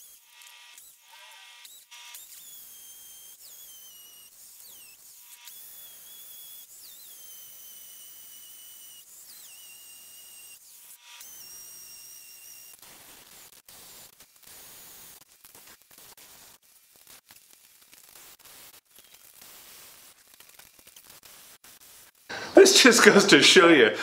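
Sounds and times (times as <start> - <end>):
hammer drill boring into concrete: 0.0 - 16.2.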